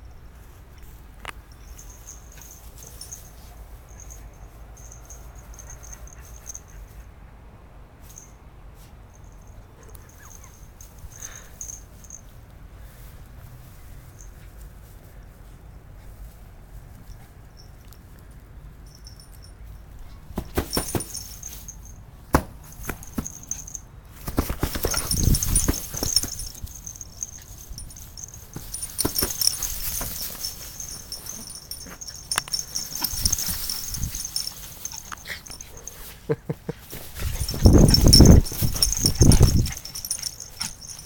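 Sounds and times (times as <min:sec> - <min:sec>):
dogs rustling in straw: 0:24.4 - 0:36.0, 0:36.9 - 0:41.0.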